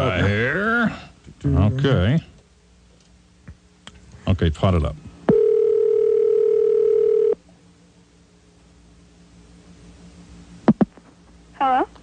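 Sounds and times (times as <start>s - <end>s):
phone line click: 5.3s - 7.4s
telephone ringback tone: 5.3s - 7.4s.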